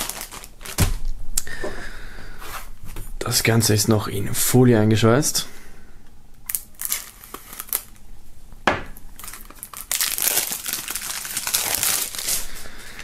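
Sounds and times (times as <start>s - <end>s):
plastic film crinkling: 0.0s - 1.1s, 6.4s - 8.0s, 9.1s - 13.0s.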